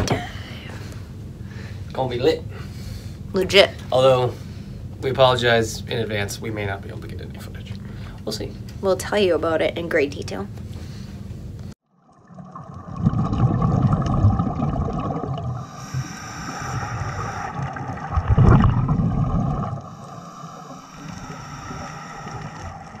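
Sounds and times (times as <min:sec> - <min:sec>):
underwater bubbling and gurgling: 0:11.9 - 0:23.0
steady underwater wash: 0:12.0 - 0:23.0.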